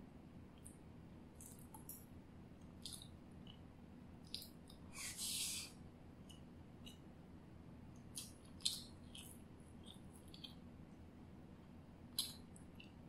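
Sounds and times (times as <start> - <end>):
person chewing food: 1.4 - 4.9, 8.0 - 10.8, 12.1 - 13.0
wet mouth clicks: 2.8 - 3.6, 8.1 - 10.6, 12.2 - 13.0.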